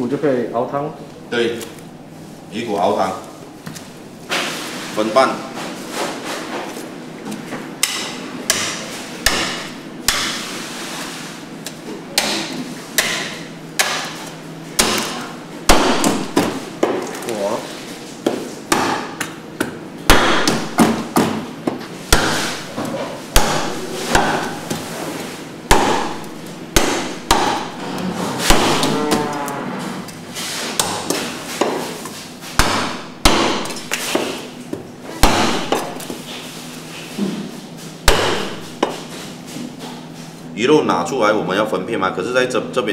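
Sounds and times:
cleaver chopping on wooden block: 7.8 - 10.4, 12.2 - 14.2, 14.8 - 17.0, 18.3 - 22.7, 23.3 - 24.8, 25.7 - 27.8, 28.5 - 29.0, 32.6 - 34.4, 35.2 - 36.2, 38.1 - 39.0.

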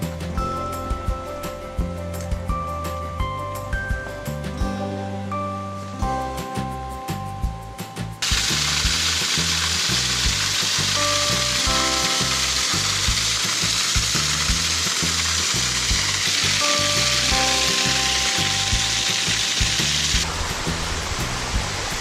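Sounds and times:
background music with low beat: 0.0 - 22.0
waterfall rushing: 8.2 - 22.0.

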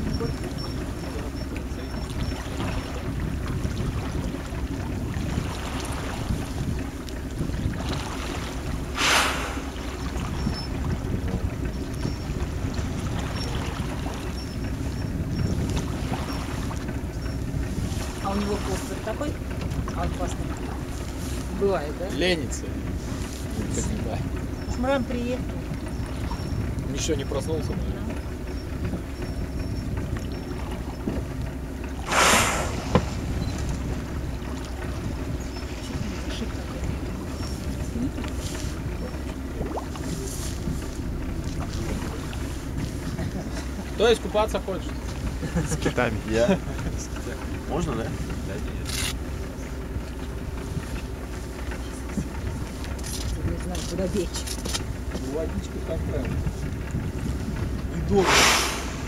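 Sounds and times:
boat rumble: 0.0 - 59.0
wind: 0.0 - 59.0
whale blowing: 7.6 - 10.9, 31.9 - 40.8, 58.1 - 59.0
whale blowing breath: 8.9 - 10.0, 32.0 - 33.4, 58.1 - 59.0.

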